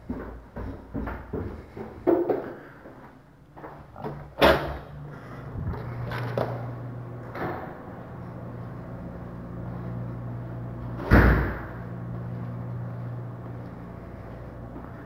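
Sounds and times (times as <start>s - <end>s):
steady low hum: 0.0s - 15.0s
door slamming: 11.0s - 11.8s.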